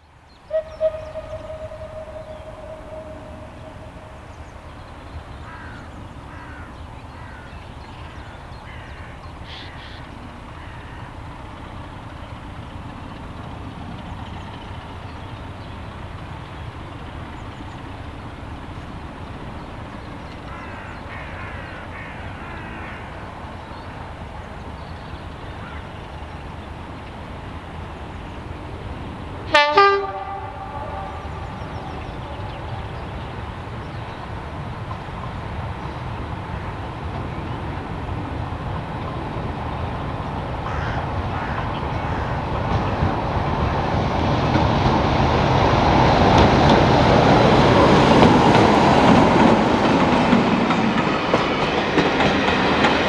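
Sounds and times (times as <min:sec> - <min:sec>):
crow-like bird calling: 0:00.5 - 0:07.5, 0:08.1 - 0:11.2, 0:20.4 - 0:23.2, 0:40.6 - 0:42.5.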